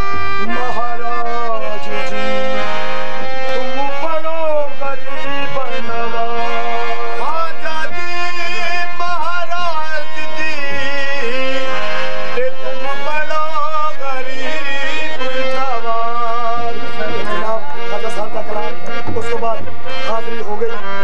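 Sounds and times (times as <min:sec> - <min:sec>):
harmonium sustained chords: 0:00.0 - 0:21.0
men singing ornamented lines: 0:00.0 - 0:21.0.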